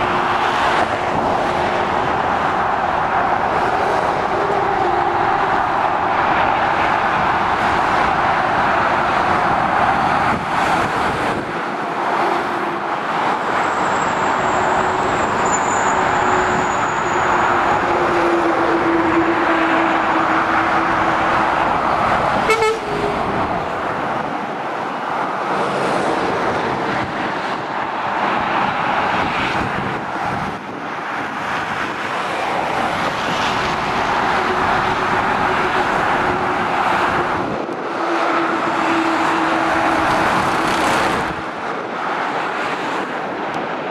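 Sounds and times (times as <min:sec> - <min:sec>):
motorway traffic rushing: 0:00.0 - 0:43.9
short horn toot: 0:22.4 - 0:23.2.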